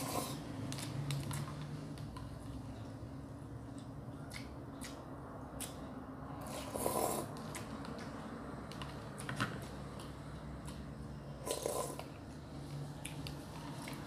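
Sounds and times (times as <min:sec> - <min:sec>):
slurping noodles: 0:00.0 - 0:00.4, 0:06.4 - 0:07.3, 0:11.4 - 0:12.1
soft chewing: 0:03.6 - 0:10.9.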